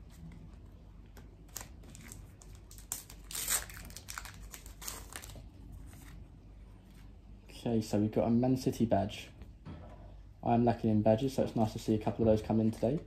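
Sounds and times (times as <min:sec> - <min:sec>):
foil wrapper crinkling and tearing: 0:01.5 - 0:05.5.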